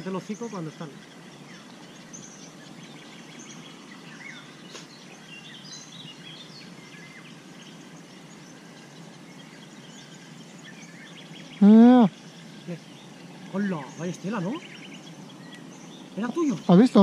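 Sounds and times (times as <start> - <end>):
bird chirps and whistled calls: 0.0 - 17.0
steady soft hiss: 0.0 - 17.0.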